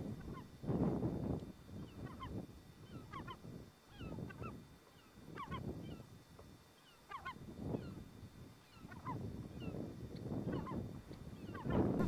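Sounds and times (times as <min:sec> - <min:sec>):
wind gusts: 0:00.0 - 0:06.3, 0:07.3 - 0:12.0
geese honking: 0:01.8 - 0:06.0, 0:06.8 - 0:08.0, 0:08.7 - 0:09.7, 0:10.4 - 0:12.0.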